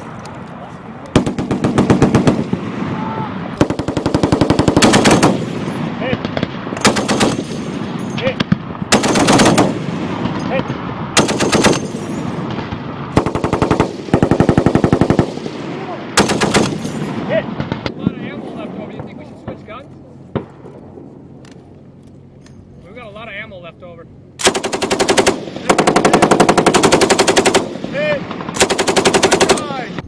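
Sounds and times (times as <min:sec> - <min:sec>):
quieter gunfire: 0:01.1 - 0:02.9, 0:03.6 - 0:18.2, 0:20.3 - 0:21.0, 0:24.4 - 0:30.0
machine gun bursts: 0:03.6 - 0:05.5, 0:06.8 - 0:07.6, 0:08.9 - 0:09.8, 0:11.2 - 0:12.0, 0:16.2 - 0:17.0, 0:24.4 - 0:27.7, 0:28.6 - 0:29.8.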